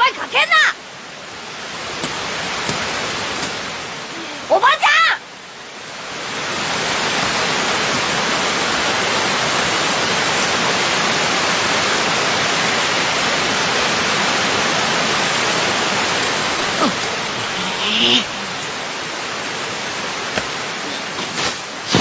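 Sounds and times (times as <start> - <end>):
heavy rain pouring: 0.0 - 22.0.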